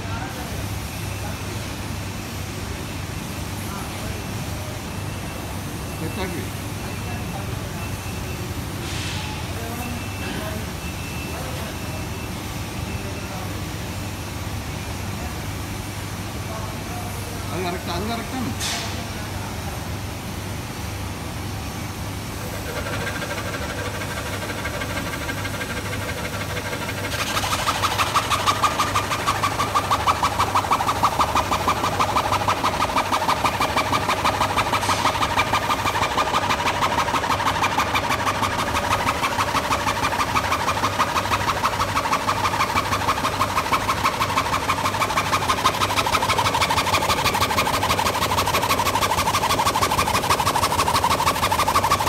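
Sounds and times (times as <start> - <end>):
band saw cutting cardboard: 22.5 - 52.0
band saw motor hum: 22.5 - 52.0.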